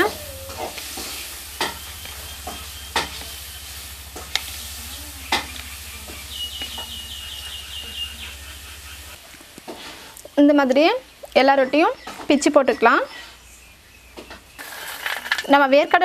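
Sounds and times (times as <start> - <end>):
steady low hum: 0.0 - 9.2.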